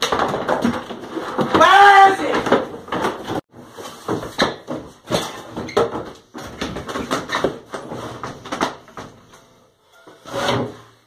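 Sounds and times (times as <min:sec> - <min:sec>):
shovel knocks and bangs: 0:00.0 - 0:03.4.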